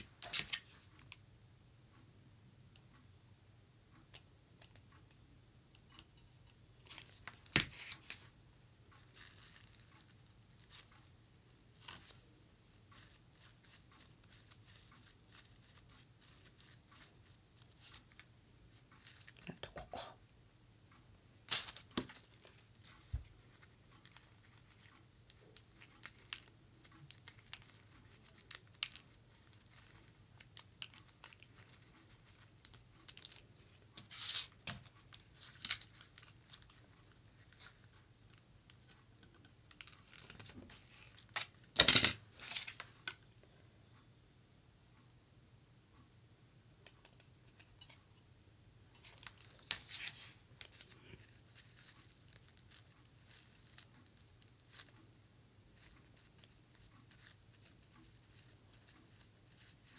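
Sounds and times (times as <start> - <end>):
small clicks and taps: 4.0 - 7.8.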